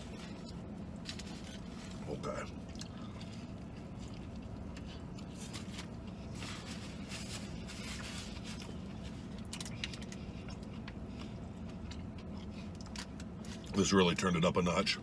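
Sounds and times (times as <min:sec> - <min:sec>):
man chewing: 0:00.0 - 0:13.8
low cabin hum: 0:00.0 - 0:15.0
paper wrappers rustling: 0:05.3 - 0:10.2.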